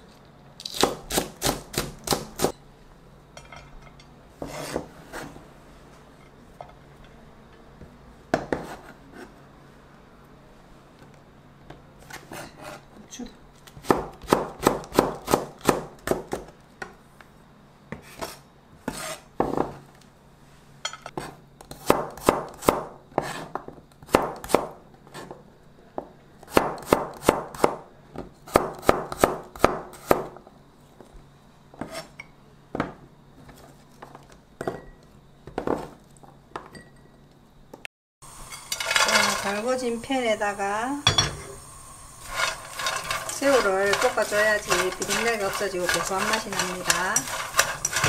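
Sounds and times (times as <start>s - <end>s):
knife chopping on cutting board: 21.7s - 25.3s.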